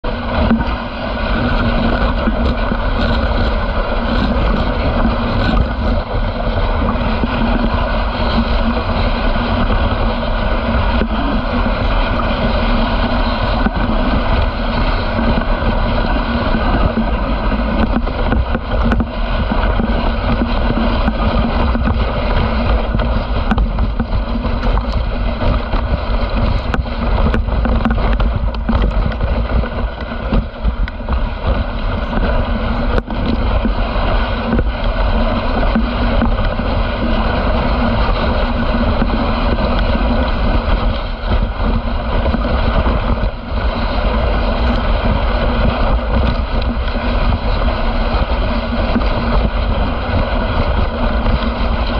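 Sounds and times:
sled running on snow: 0:00.0 - 0:51.9
wind buffeting microphone: 0:00.0 - 0:51.9.

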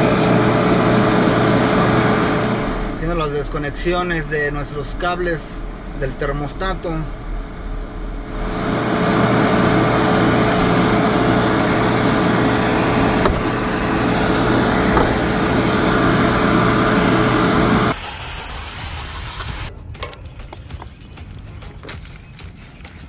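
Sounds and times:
recovery machine humming: 0:00.0 - 0:18.0.

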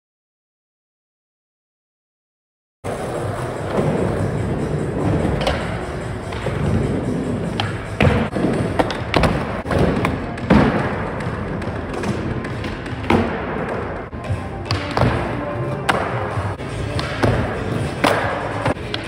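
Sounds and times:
skateboard wheels rolling on concrete: 0:02.9 - 0:12.8
skateboard clacks and thuds: 0:07.5 - 0:14.1.

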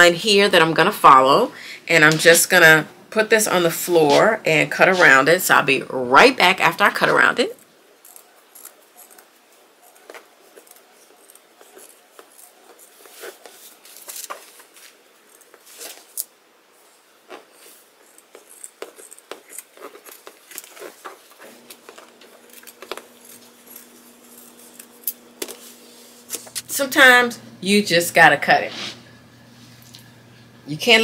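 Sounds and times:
faint steady hum: 0:00.0 - 0:31.0
scissors snipping fabric: 0:18.0 - 0:25.6.

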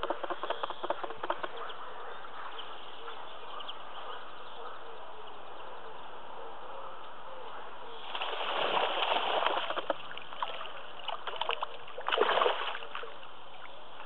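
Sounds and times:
fish splashing in water: 0:08.0 - 0:13.1.

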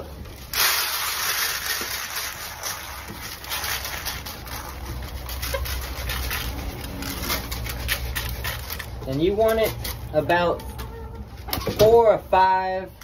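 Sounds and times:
grain rattling into metal tray: 0:00.4 - 0:07.8.

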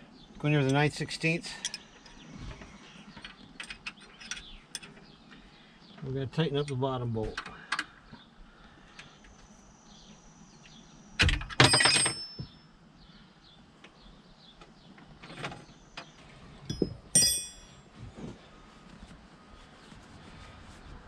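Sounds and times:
metal tools clinking: 0:11.5 - 0:12.6, 0:16.7 - 0:17.8.

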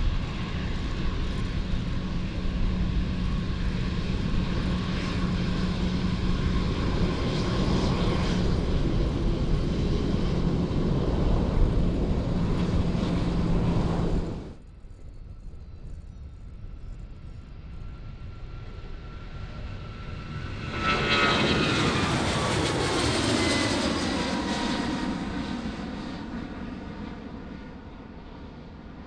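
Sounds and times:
jet airliner engine passing: 0:00.0 - 0:29.0
loud aircraft sound: 0:00.0 - 0:29.0.

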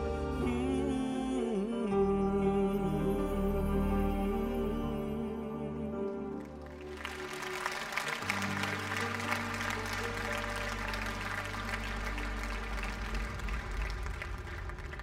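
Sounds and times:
audience applauding: 0:06.3 - 0:15.0.

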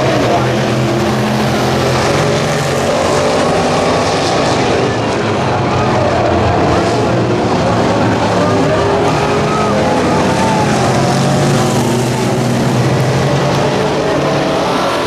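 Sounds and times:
race car engines running hard: 0:00.0 - 0:15.0.

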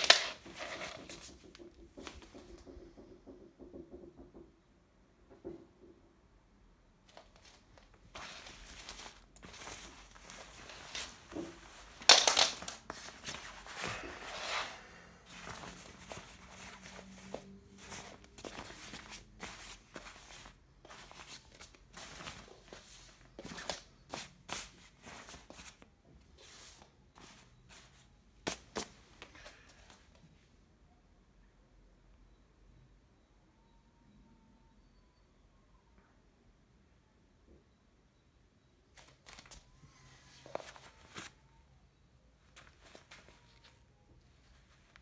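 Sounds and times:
jacket fabric rustling: 0:00.0 - 0:01.4, 0:07.0 - 0:30.0, 0:40.2 - 0:41.4.

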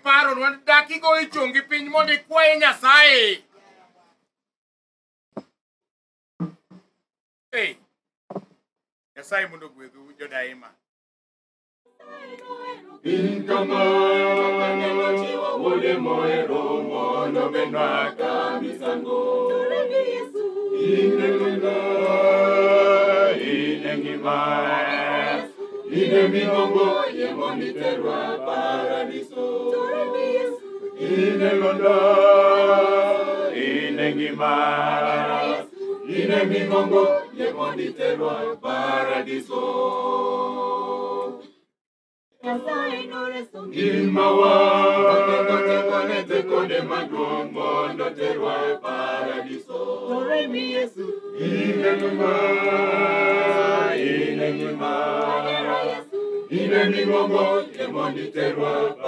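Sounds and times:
choir singing a hymn: 0:12.0 - 0:41.4, 0:42.4 - 0:59.0.

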